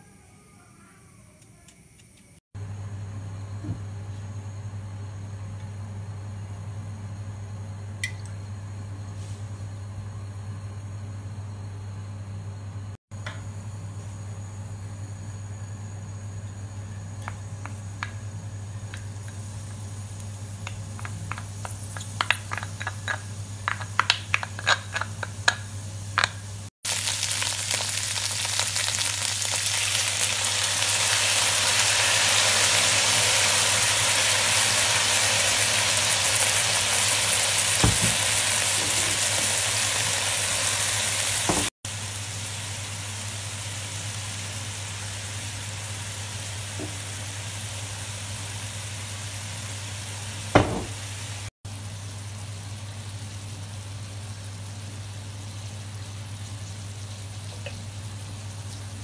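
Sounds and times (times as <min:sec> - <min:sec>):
food sizzling in oil: 0:13.4 - 0:59.0.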